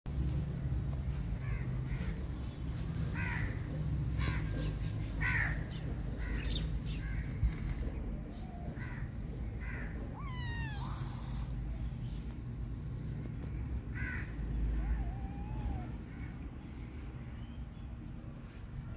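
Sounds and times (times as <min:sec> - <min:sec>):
kittens mewing: 0:09.6 - 0:11.8, 0:13.9 - 0:16.5
long wavering meow: 0:14.9 - 0:16.0.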